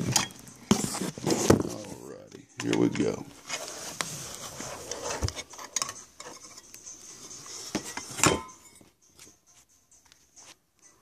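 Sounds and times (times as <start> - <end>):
metallic clinks and rubbing: 4.2 - 10.0.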